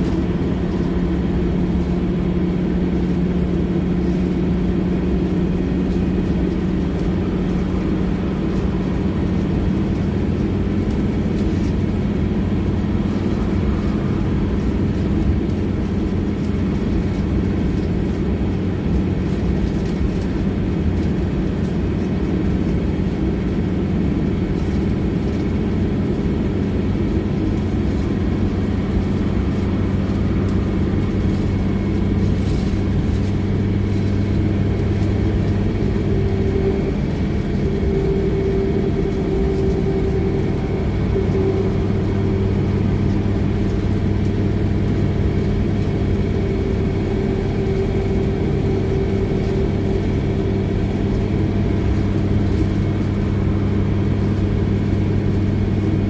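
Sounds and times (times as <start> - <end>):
bus engine hum: 0.0 - 56.0
road noise: 0.0 - 56.0
light rattles: 24.5 - 55.8.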